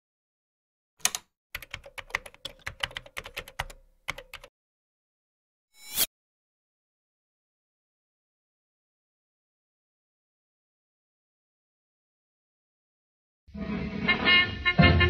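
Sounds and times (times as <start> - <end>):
keyboard key clicks: 1.0 - 4.5.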